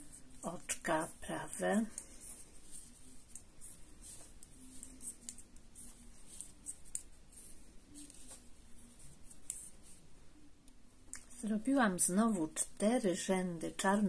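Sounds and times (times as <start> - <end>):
knitting needles clicking: 3.3 - 5.6.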